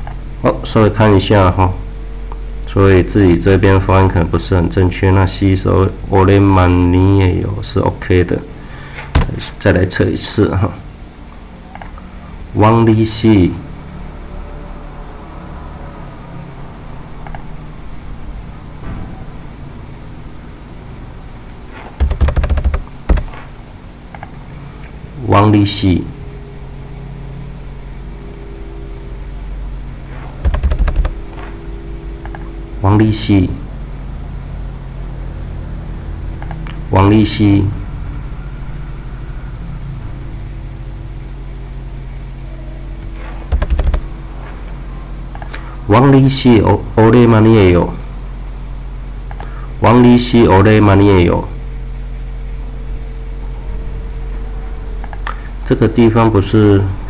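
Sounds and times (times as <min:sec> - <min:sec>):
steady low hum: 0:00.0 - 0:57.0
sharp clicks: 0:09.1 - 0:09.4, 0:11.7 - 0:12.0, 0:17.2 - 0:17.5, 0:22.0 - 0:23.4, 0:24.1 - 0:24.4, 0:30.4 - 0:31.2, 0:32.2 - 0:32.5, 0:36.4 - 0:36.8, 0:43.5 - 0:44.0, 0:45.3 - 0:45.6, 0:49.2 - 0:49.6, 0:55.0 - 0:55.4
keyboard keys tapping: 0:09.2 - 0:09.4, 0:22.0 - 0:23.4, 0:30.4 - 0:31.4, 0:32.2 - 0:32.5, 0:43.5 - 0:44.1.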